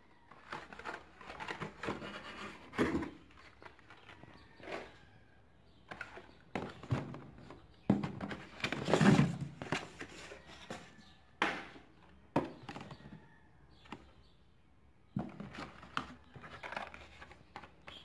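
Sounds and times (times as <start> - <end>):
cardboard scraping rustle: 0.5 - 3.9, 8.2 - 11.0.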